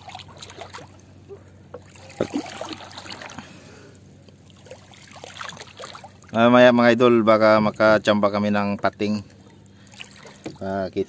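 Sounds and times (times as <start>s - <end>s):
sea water splashing and trickling: 0.0s - 10.9s.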